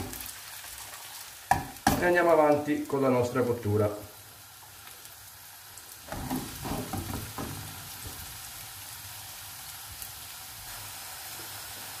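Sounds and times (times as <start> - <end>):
potatoes sizzling in oil: 0.0 - 12.0
pan clattering: 6.1 - 7.7.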